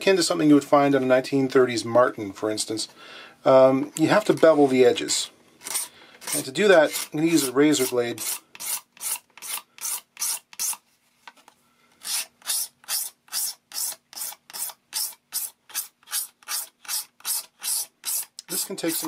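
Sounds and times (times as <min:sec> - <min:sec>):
razor blade scraping plastic: 0:05.6 - 0:10.8, 0:12.0 - 0:19.0.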